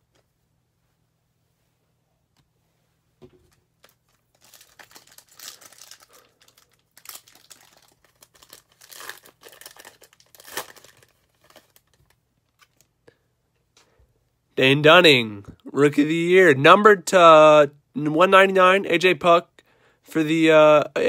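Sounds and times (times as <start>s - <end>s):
foil wrapper crinkling and tearing: 3.8s - 12.9s.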